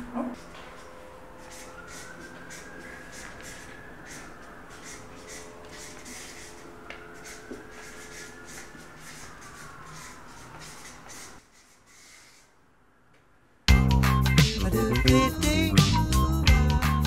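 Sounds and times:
marker writing on paper: 0:00.6 - 0:12.5.

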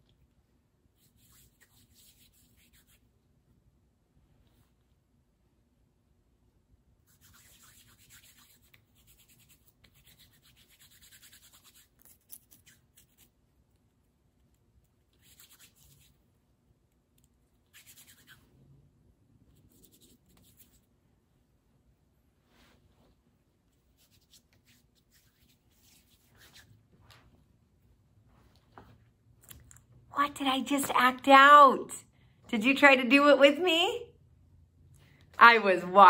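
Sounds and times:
hands rubbing together: 0:01.0 - 0:03.0, 0:07.1 - 0:13.4, 0:15.1 - 0:16.2, 0:17.7 - 0:18.5, 0:19.6 - 0:20.9, 0:23.8 - 0:27.3.

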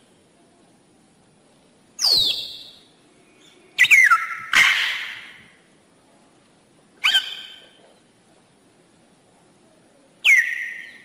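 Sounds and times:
parrot shrill calls: 0:02.0 - 0:02.9, 0:03.8 - 0:05.5, 0:07.0 - 0:07.8, 0:10.2 - 0:11.0.

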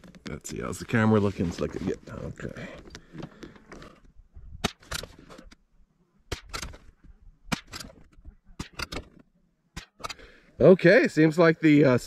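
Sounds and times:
rifle shot: 0:04.6 - 0:05.1, 0:06.3 - 0:06.9, 0:07.5 - 0:09.1.

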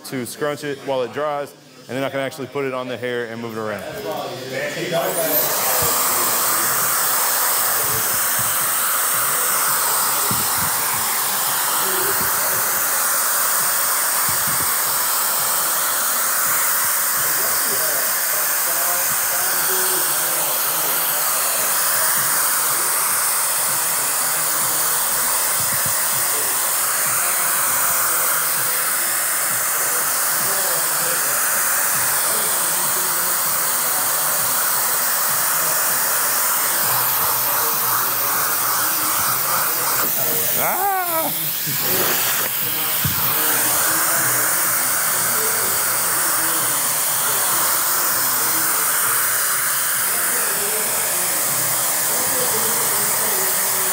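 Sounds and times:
blow dryer blowing: 0:03.4 - 0:53.9.

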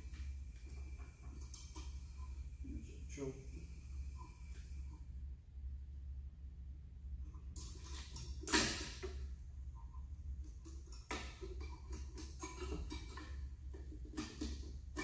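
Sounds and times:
steady low hum: 0:00.0 - 0:15.0
metal parts clicking and knocking: 0:07.5 - 0:09.3, 0:10.4 - 0:15.0.

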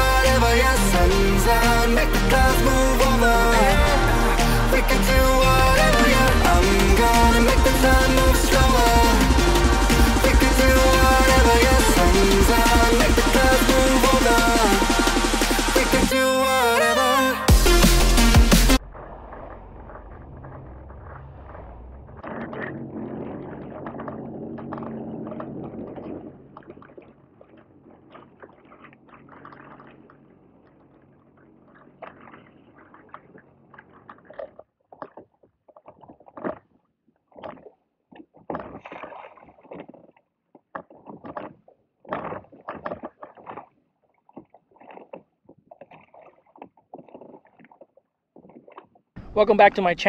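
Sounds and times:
jet ski engine humming: 0:00.0 - 0:33.7
water slapping against hull: 0:18.7 - 0:49.1.

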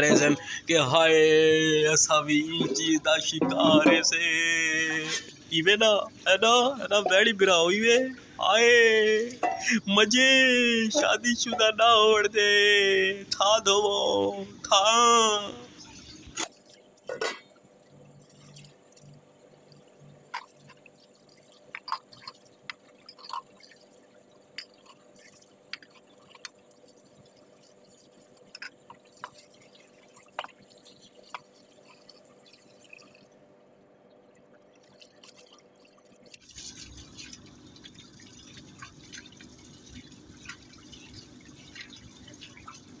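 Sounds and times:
steel pots clinking: 0:09.4 - 0:09.8, 0:23.0 - 0:23.7
water dripping and splashing: 0:16.3 - 0:43.0.

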